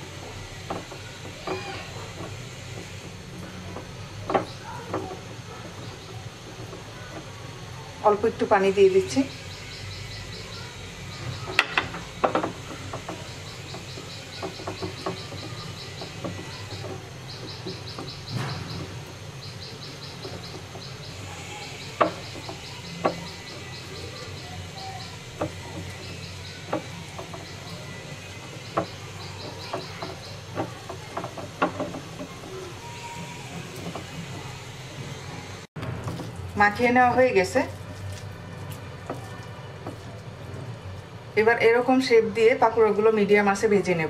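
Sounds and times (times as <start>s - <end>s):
high chirping pulses: 9.0s - 35.7s
hand squishing wet batter: 35.8s - 41.3s.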